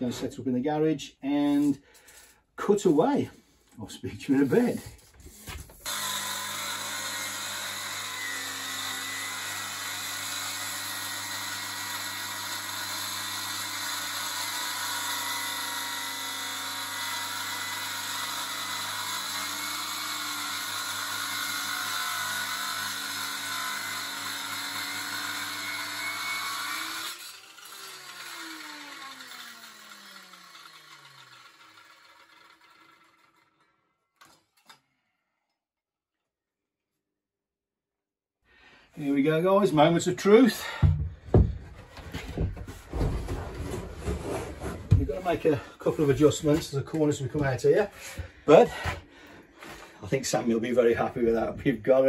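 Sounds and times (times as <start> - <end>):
circular saw cutting wood: 3.8 - 34.8, 42.9 - 52.0.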